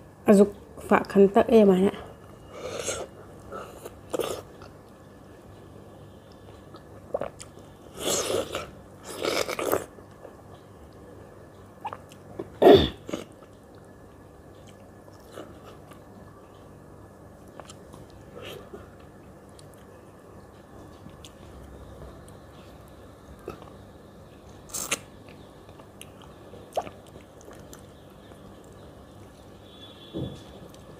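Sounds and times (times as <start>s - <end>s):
wet mouth sounds eating: 6.7s - 9.9s, 11.8s - 13.5s, 25.7s - 27.9s
quiet chewing with mouth clicks: 9.6s - 16.7s, 17.4s - 23.8s, 24.4s - 29.6s.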